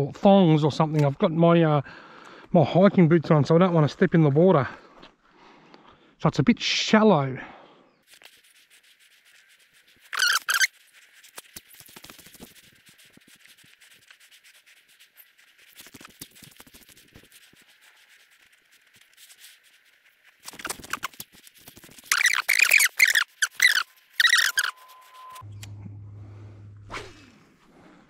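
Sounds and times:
fishing rod handling rubs: 0:08.1 - 0:25.6
short loud squeak: 0:10.1 - 0:10.7, 0:22.1 - 0:25.7.

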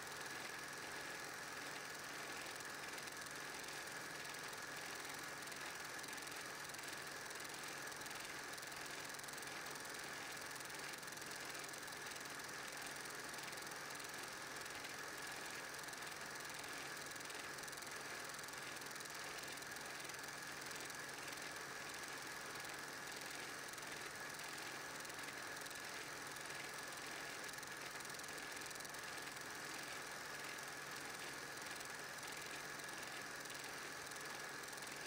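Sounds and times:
film projector whirring: 0:00.0 - 0:35.0.

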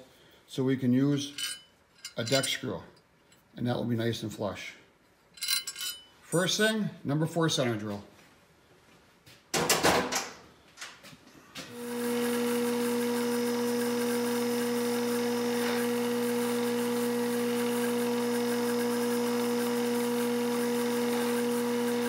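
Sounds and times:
milling machine spindle humming: 0:11.7 - 0:22.0.

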